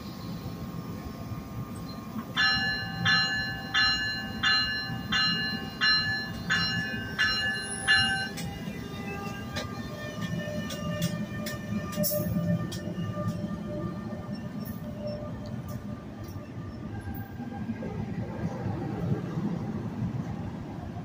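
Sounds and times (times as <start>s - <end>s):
low rumble of standing train: 0.0s - 21.0s
locomotive bell ringing: 2.4s - 15.8s.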